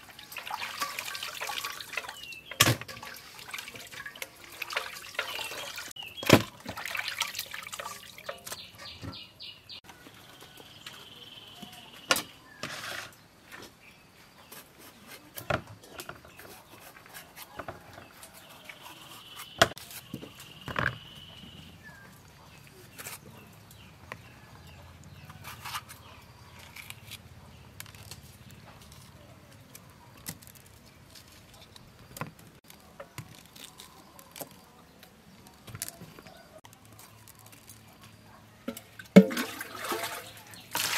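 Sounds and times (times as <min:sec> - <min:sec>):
water splashing and dripping: 0:00.0 - 0:09.2, 0:38.7 - 0:40.9.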